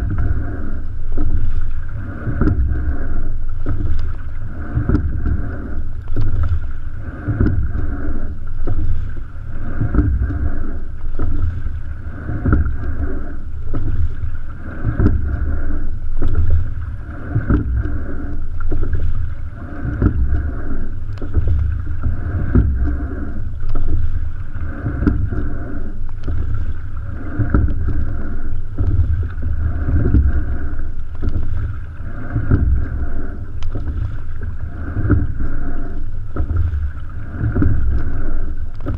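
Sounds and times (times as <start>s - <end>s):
water rushing along a hull: 0.0s - 38.9s
oars knocking in oarlocks: 27.3s - 33.0s, 36.3s - 38.2s.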